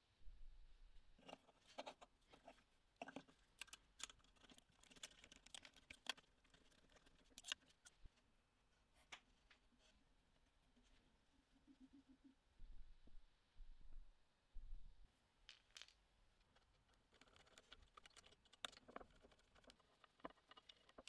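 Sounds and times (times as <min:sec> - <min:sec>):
chuck parts clicking and tapping: 0:01.2 - 0:08.1, 0:15.5 - 0:21.0.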